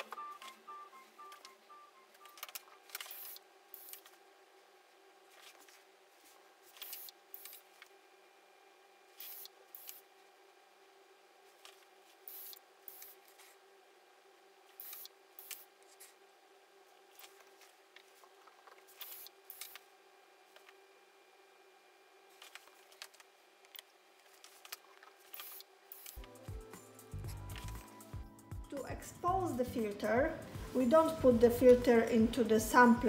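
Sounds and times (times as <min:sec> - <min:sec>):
faint equipment hum: 0:00.0 - 0:33.0
crisp clicks and rustles: 0:22.3 - 0:26.4.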